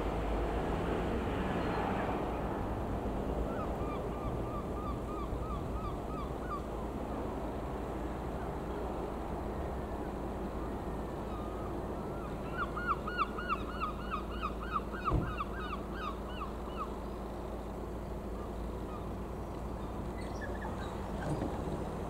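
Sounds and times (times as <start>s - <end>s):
bird calling: 3.5s - 6.7s, 11.2s - 17.3s, 18.3s - 21.9s.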